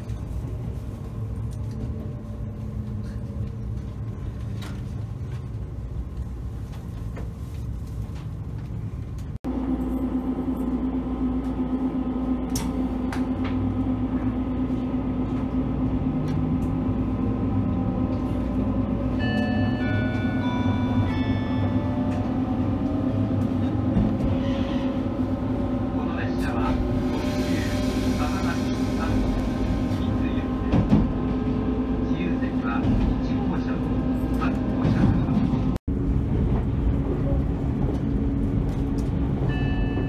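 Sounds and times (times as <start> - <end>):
low hum of trains: 0.0 - 40.0
train rumble inside carriage: 0.0 - 40.0.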